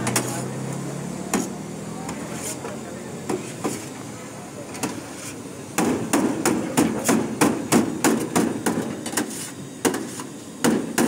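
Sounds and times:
cleavers chopping on steel tray: 0.0 - 0.4, 1.3 - 2.2, 5.8 - 11.0.

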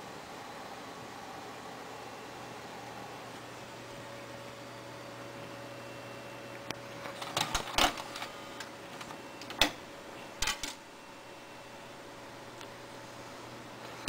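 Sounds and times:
faint background hum: 0.0 - 14.0
dvd drive mechanism clicking: 7.1 - 10.8.

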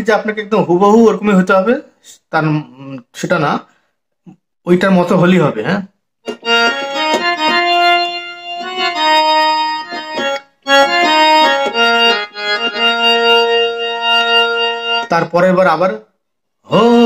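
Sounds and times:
harmonium playing slow melody: 6.2 - 15.4.

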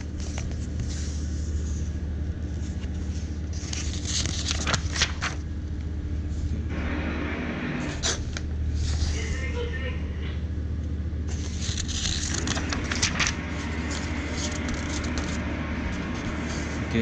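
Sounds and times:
paper pages rustling: 0.0 - 5.5, 7.9 - 9.5, 11.2 - 16.8
steady low hum: 0.0 - 17.0.

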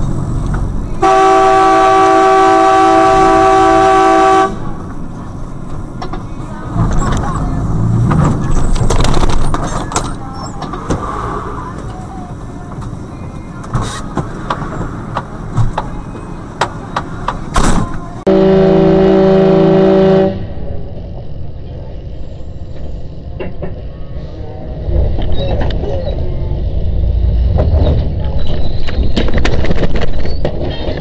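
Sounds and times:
traffic and cab rumble: 0.0 - 31.0
vehicle horn long blast: 1.0 - 4.6, 18.3 - 20.5.

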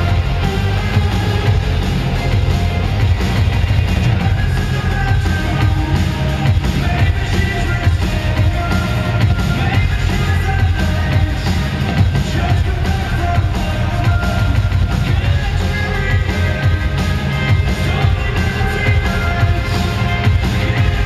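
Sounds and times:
drum kit: 0.0 - 21.0
guitar: 0.0 - 21.0
heavy bass: 0.0 - 21.0.

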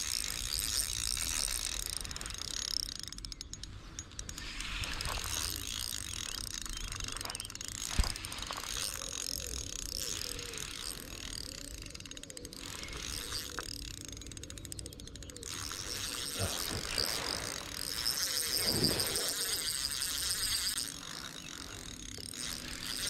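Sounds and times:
fishing reel ratcheting clicks: 0.0 - 23.0.

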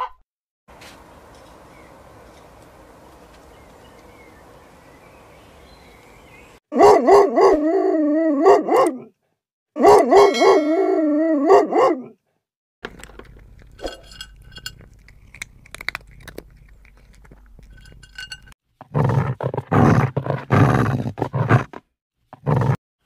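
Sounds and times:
wolf howling: 6.8 - 9.1, 9.8 - 12.1.

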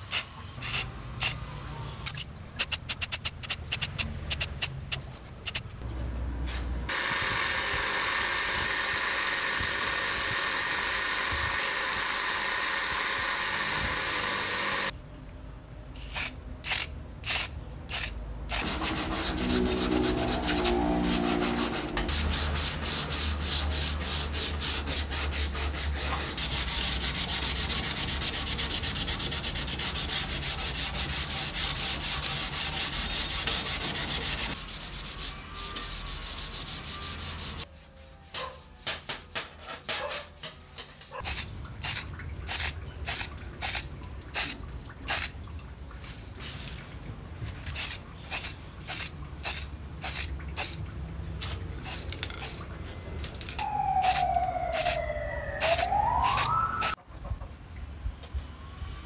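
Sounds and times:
bench grinder buffing wheel running: 6.9 - 14.9
hand sanding metal strip: 16.0 - 41.2.

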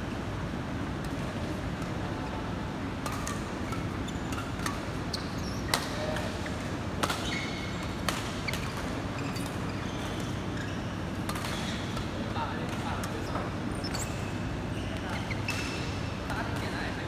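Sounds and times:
shoes squeaking on floor: 5.0 - 6.1, 7.2 - 11.9, 13.2 - 15.9.

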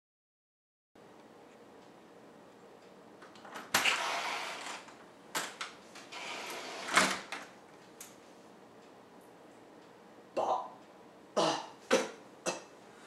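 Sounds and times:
door unlatching and opening: 3.4 - 7.5.

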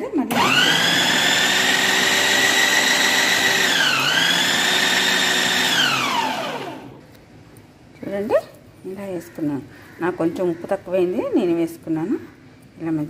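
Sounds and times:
electric chopper motor whining: 0.3 - 7.0.

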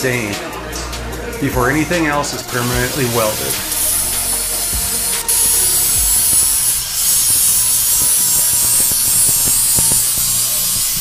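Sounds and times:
angle grinder grinding metal: 2.2 - 11.0.

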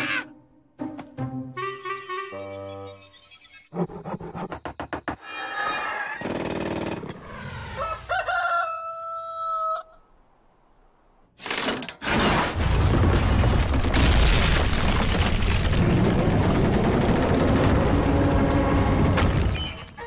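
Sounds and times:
rooster crowing: 7.6 - 10.1
loud rumbling noise: 14.0 - 19.4.

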